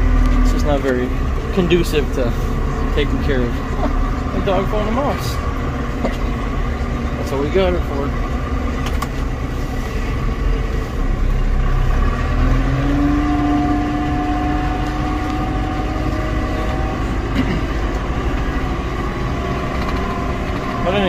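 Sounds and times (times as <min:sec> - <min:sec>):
diesel engine rumbling: 0:00.0 - 0:21.0
higher tone: 0:10.3 - 0:21.0.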